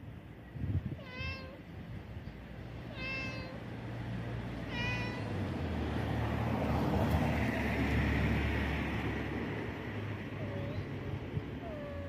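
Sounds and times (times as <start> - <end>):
cat meowing: 0.9 - 1.6, 2.9 - 3.6, 4.6 - 5.3, 10.4 - 10.9, 11.6 - 12.0
vehicle passing: 2.4 - 12.0.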